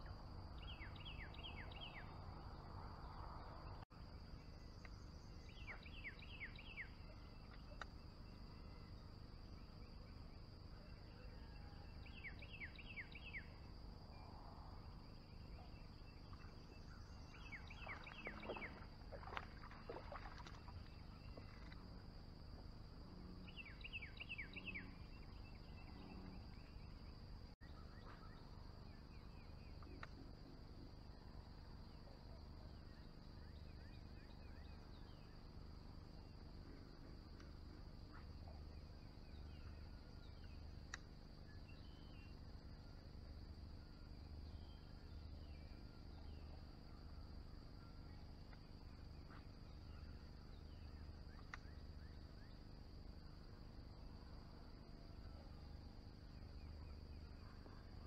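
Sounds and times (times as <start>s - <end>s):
faint bird chirps: 3.4s - 21.8s, 23.4s - 35.6s
faint ticks: 40.9s - 41.2s, 51.3s - 51.8s.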